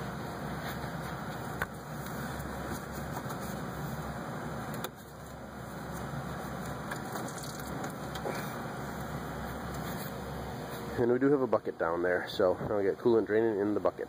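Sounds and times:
coolant splashing into bucket: 7.0 - 8.2.

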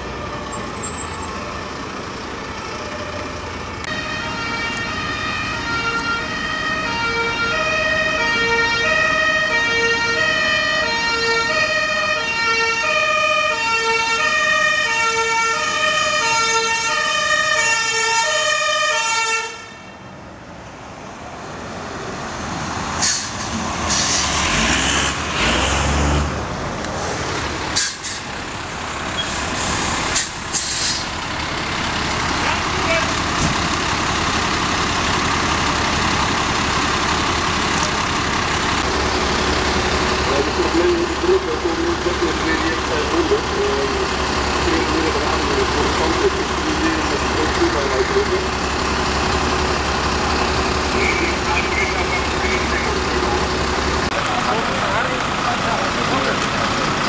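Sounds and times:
fire engine two-tone siren: 0.0 - 20.1, 34.3 - 53.7
heavy truck engines rumbling: 0.0 - 57.0.

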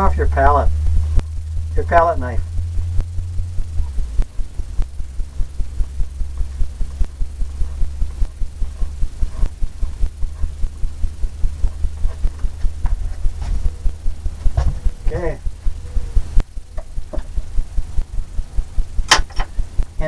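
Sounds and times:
steady low hum: 0.0 - 20.0
brush strokes thumping on canvas: 11.2 - 15.1.

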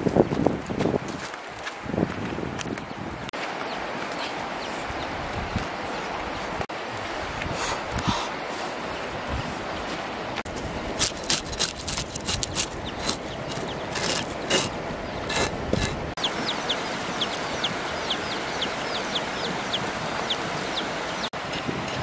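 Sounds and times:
knife scraping fish scales: 11.0 - 16.0
chicks and ducklings peeping: 11.4 - 15.4, 16.2 - 21.3.

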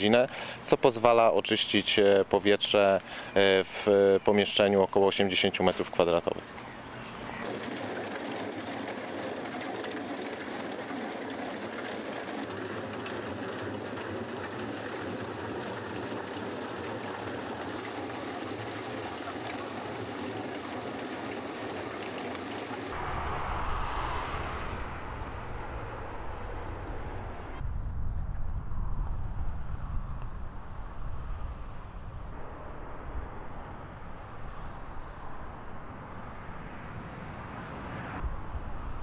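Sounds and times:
coal clattering on conveyor belt: 7.3 - 22.9
low rumble: 22.9 - 39.0.

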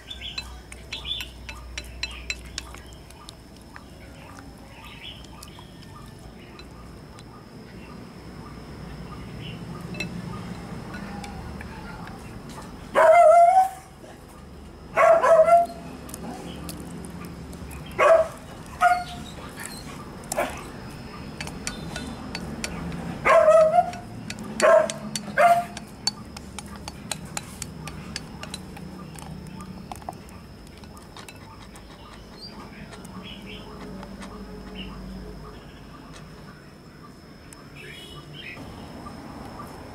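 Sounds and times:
dog barking: 12.9 - 15.8, 18.0 - 19.2, 20.3 - 20.7, 23.2 - 25.8.

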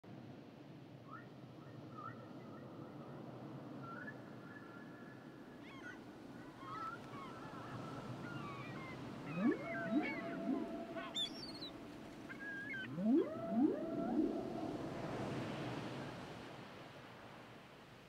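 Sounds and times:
killer whale squeals and whistles: 7.6 - 15.4.

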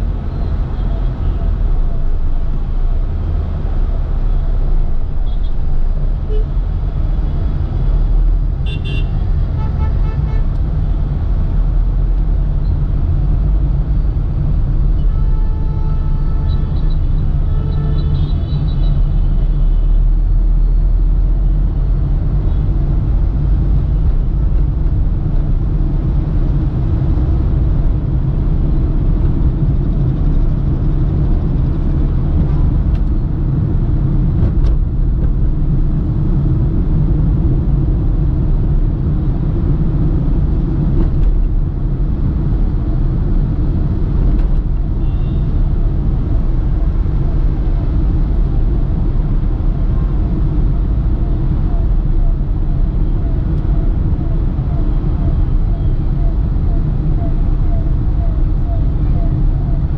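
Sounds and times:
traffic engines and road noise: 0.0 - 59.9
vehicle horns tooting: 8.6 - 10.5, 15.0 - 19.4, 45.0 - 45.5.

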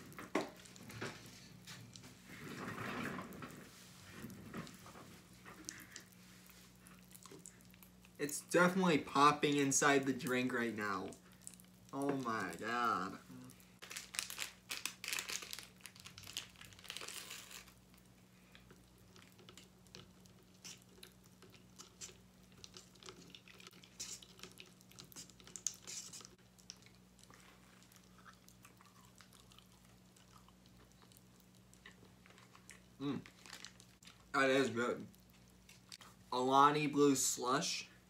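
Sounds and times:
low electrical hum: 0.0 - 38.0
candy crackling into plastic cup: 13.8 - 18.1, 32.0 - 34.3
plastic packet crinkling and tearing: 13.8 - 18.1, 31.9 - 34.3.

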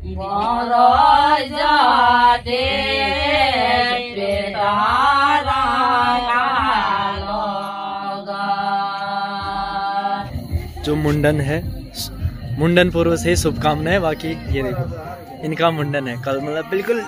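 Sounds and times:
women singing folk song: 0.0 - 12.6.

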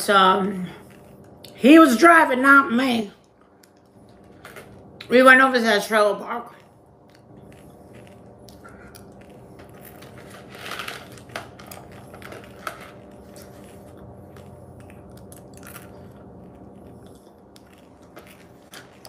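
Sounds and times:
steady low hum: 0.0 - 19.0
food crunch: 3.2 - 5.1, 6.5 - 19.0
person chewing: 3.2 - 5.1, 6.5 - 19.0.

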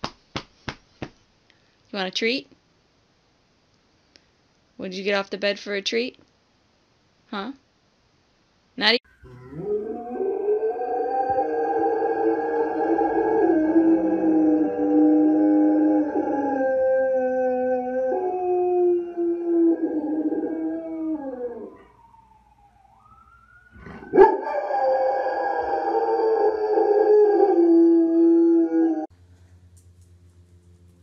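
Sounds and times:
dog howling: 9.2 - 22.0, 23.8 - 29.1.

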